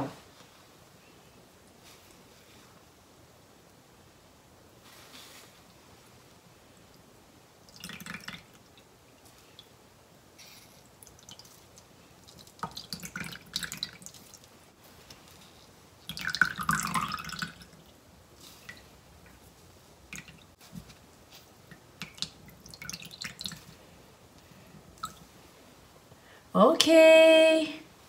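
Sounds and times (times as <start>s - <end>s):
water dripping and trickling into bowl: 7.6s - 9.8s, 10.8s - 14.5s, 16.0s - 19.4s, 20.0s - 20.6s, 21.6s - 25.3s.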